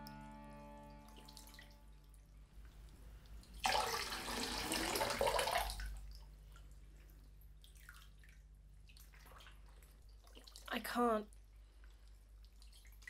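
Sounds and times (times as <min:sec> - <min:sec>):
drips and small splashes: 0:01.0 - 0:13.0
water poured splashing into bathtub: 0:03.4 - 0:10.7.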